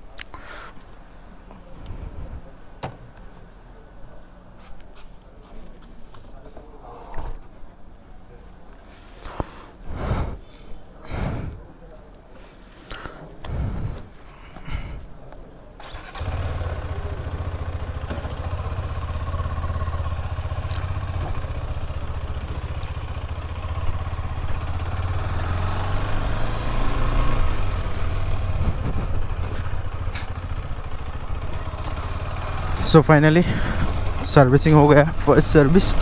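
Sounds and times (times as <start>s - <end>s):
motorcycle engine riding off: 15.8s - 36.0s.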